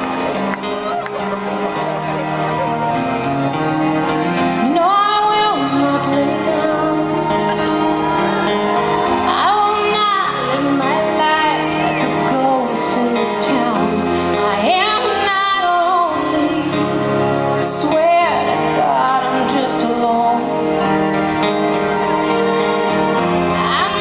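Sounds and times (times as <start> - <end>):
woman singing a slow ballad: 4.6 - 7.3, 9.3 - 20.7, 23.5 - 24.0.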